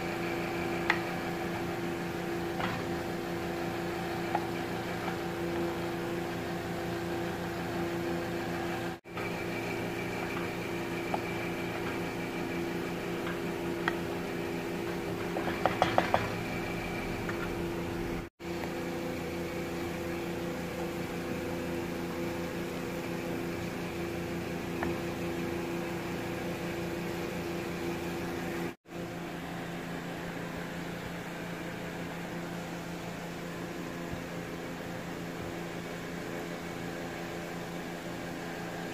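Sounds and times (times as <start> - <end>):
electric motor hum: 0.0 - 28.8
wooden spatula knocking pot: 15.3 - 16.4.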